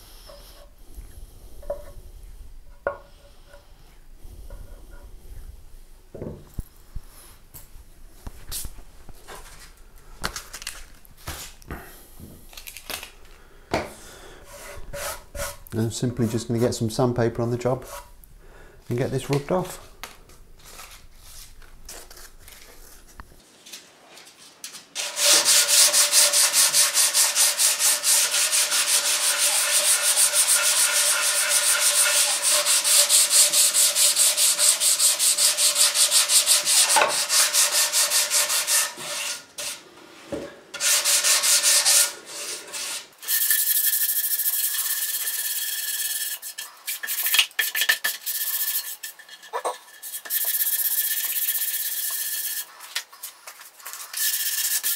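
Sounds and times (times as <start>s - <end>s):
sandpaper sanding wood: 25.0s - 39.8s, 40.8s - 49.1s, 50.0s - 54.9s.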